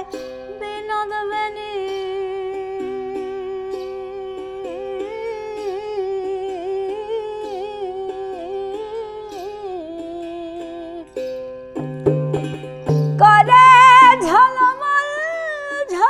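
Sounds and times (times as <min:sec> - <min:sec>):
woman singing wordless line: 0:00.0 - 0:11.2, 0:13.2 - 0:16.0
plucked one-string lute: 0:00.0 - 0:16.0
hand drum: 0:11.2 - 0:14.8.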